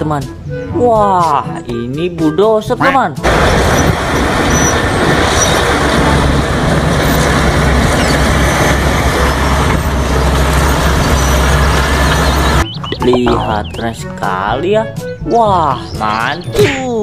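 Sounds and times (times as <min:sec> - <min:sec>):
bulldozer engine hum: 0:03.2 - 0:14.3.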